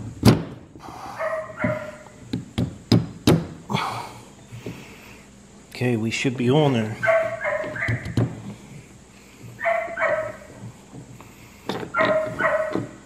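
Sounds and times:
dog barking: 1.1s - 2.1s, 7.0s - 8.2s, 9.6s - 10.5s, 11.9s - 13.0s.

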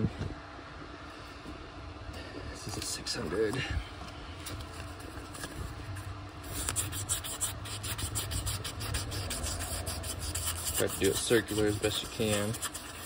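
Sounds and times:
low hum: 0.0s - 13.0s
sandpaper scratching metal: 6.4s - 13.0s.

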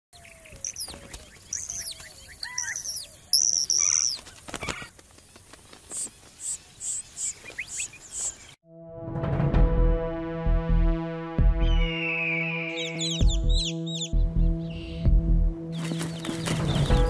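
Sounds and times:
small birds whistling: 0.2s - 4.9s, 5.9s - 8.6s, 11.7s - 15.0s
short high bird chips: 0.6s - 4.9s
bird wingbeats: 3.8s - 6.6s, 15.8s - 17.0s.

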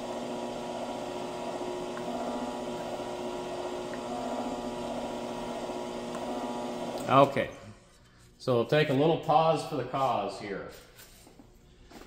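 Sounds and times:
power hammer motor hum: 0.0s - 7.1s.

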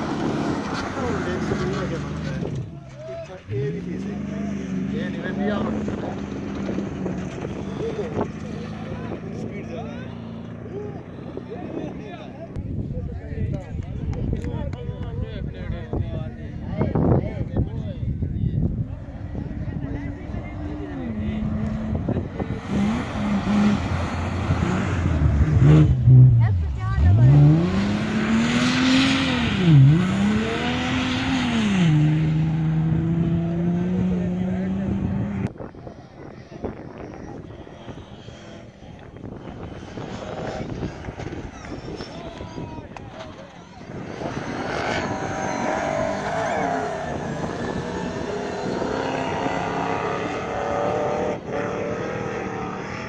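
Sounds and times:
car engine revving high: 19.3s - 35.6s, 43.8s - 53.0s
tyres churning sand: 39.8s - 53.0s.

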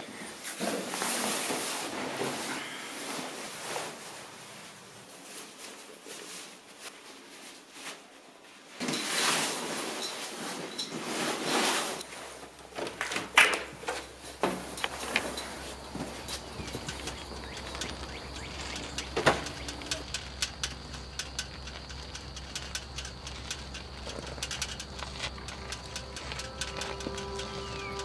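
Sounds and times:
bicycle being wheeled: 9.6s - 28.0s
clicks and knocks: 12.7s - 28.0s.

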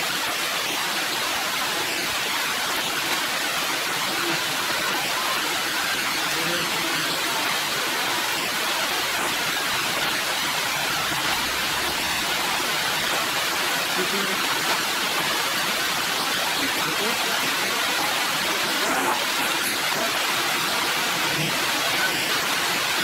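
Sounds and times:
heavy rain falling: 0.0s - 23.0s.

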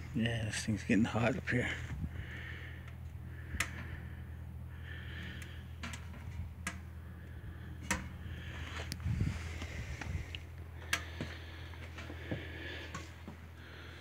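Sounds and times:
steady low hum: 0.0s - 14.0s
metal smoker ticks and pops: 2.8s - 4.0s, 5.2s - 7.0s, 7.7s - 9.0s, 10.3s - 11.2s.

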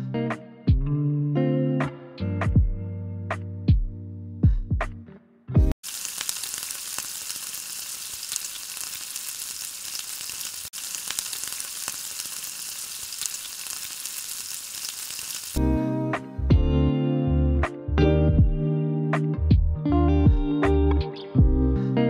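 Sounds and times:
leaves deep-frying in oil: 5.8s - 15.6s.

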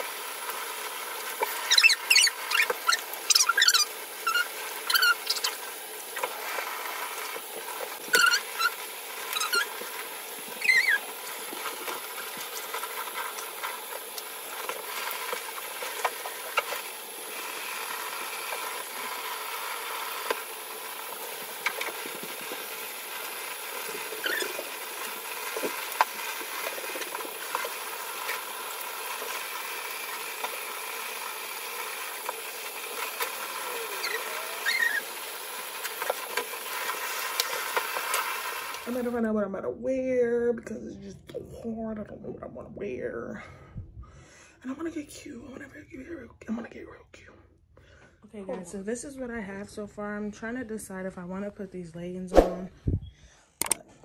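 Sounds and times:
shower spray running: 0.0s - 39.1s
squeaks of skin scrubbing: 1.6s - 6.6s, 8.1s - 9.9s, 10.5s - 11.2s, 24.1s - 24.7s, 33.6s - 35.2s.

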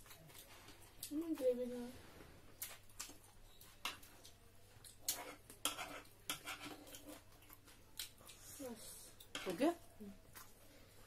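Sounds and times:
chewing smacks and clicks: 6.9s - 8.4s.

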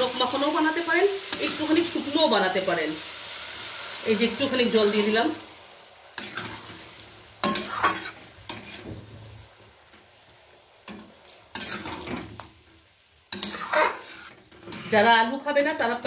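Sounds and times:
curry sizzling: 0.0s - 16.0s
metal spatula scraping a pan: 6.2s - 9.0s, 10.9s - 12.4s, 13.3s - 16.0s.

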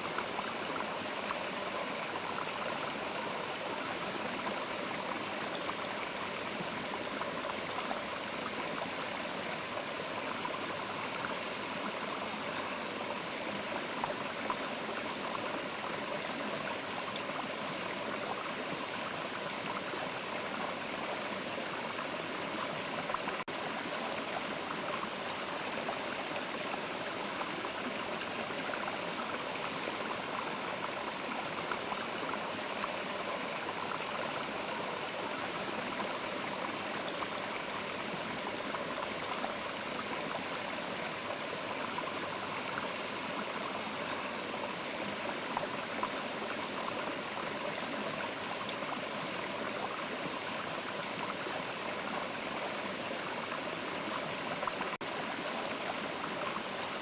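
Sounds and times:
river water rushing: 44.3s - 57.0s.

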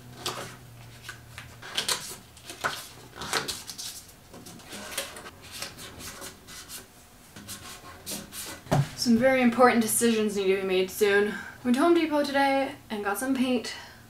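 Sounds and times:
paper cards rustling and tapping: 0.1s - 6.8s.

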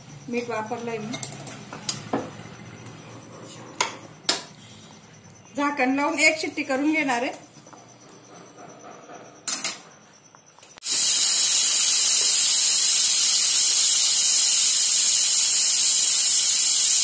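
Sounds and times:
pressure cooker steam hiss: 10.8s - 17.0s.

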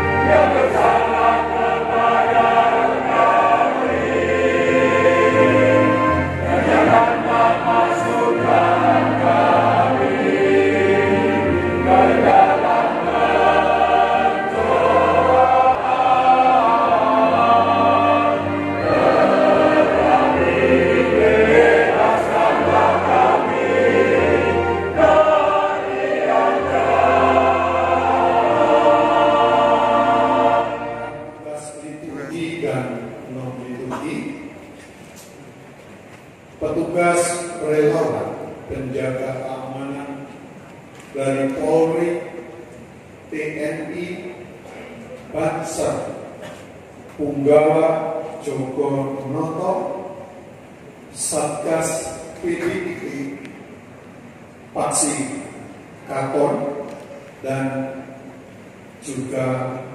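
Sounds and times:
church choir singing a hymn: 0.0s - 34.5s, 36.6s - 40.3s, 41.1s - 42.7s, 45.3s - 46.4s, 51.1s - 53.5s.

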